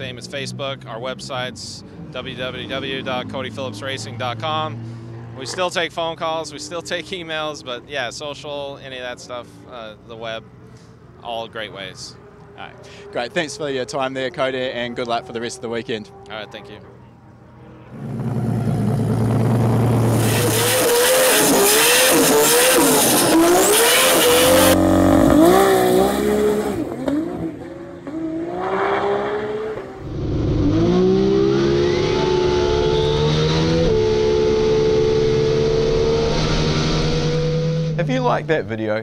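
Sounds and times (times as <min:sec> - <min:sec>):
car engine revving: 0:17.8 - 0:39.0.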